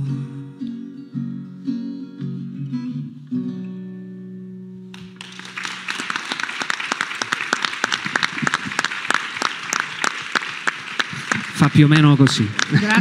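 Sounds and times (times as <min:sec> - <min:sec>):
audience applause: 0:05.0 - 0:13.0.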